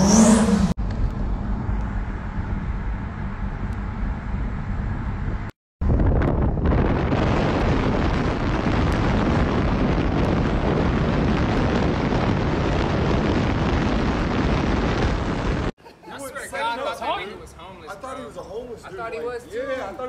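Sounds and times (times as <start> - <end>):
car engine and exhaust rushing: 0.0 - 15.7.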